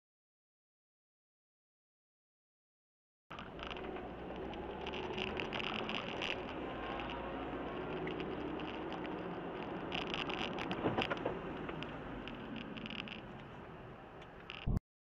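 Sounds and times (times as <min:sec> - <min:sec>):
sharp clicks: 0:03.3 - 0:13.6, 0:14.2 - 0:14.8
road and engine noise in car: 0:03.3 - 0:14.8.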